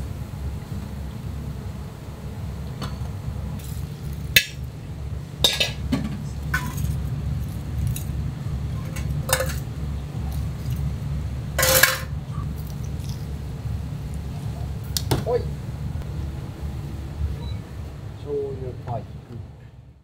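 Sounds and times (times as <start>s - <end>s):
low hum: 0.0s - 20.0s
dishes and utensils clattering: 5.4s - 7.0s, 8.8s - 9.7s, 11.6s - 12.2s.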